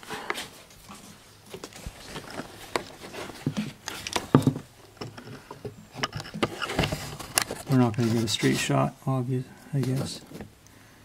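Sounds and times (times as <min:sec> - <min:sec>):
hands handling things clicking: 0:01.5 - 0:08.0.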